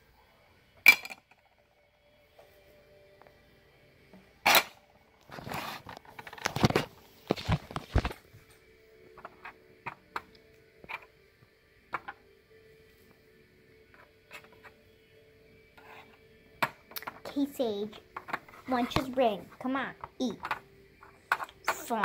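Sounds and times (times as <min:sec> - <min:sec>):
rustling and scraping of toys: 0:05.2 - 0:08.6, 0:09.2 - 0:10.0, 0:14.0 - 0:14.8, 0:15.8 - 0:16.2, 0:17.1 - 0:22.0.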